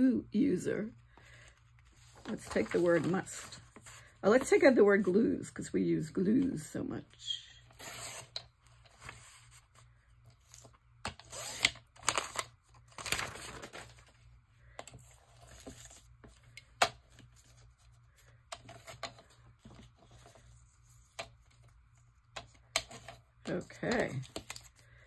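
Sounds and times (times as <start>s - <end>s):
paper rustling: 1.3s - 4.1s, 12.0s - 14.3s.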